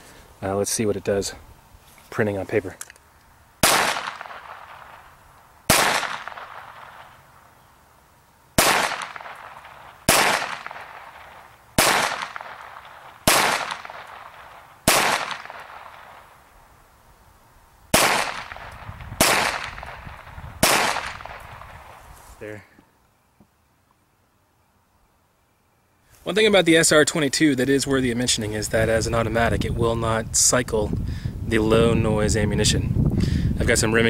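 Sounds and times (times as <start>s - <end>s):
pistol shots: 3.6s - 5.1s, 5.7s - 7.2s, 8.6s - 16.4s, 17.9s - 21.8s.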